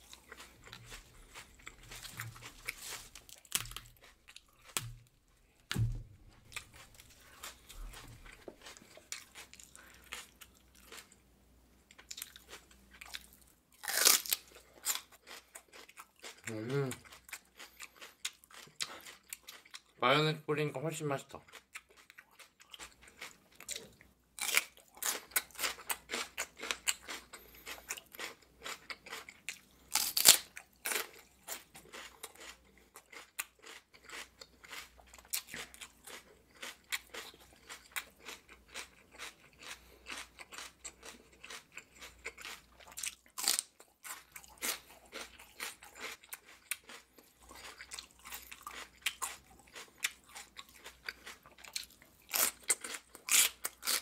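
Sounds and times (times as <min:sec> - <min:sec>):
celery crunching: 0:00.0 - 0:05.1, 0:05.7 - 0:11.1, 0:12.0 - 0:19.7, 0:29.9 - 0:54.0.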